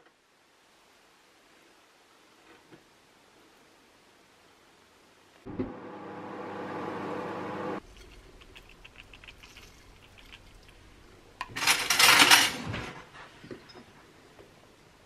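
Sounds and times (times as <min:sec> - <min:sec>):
microwave oven humming: 0:05.5 - 0:07.8
seeds sprinkled onto a plate: 0:07.8 - 0:11.7.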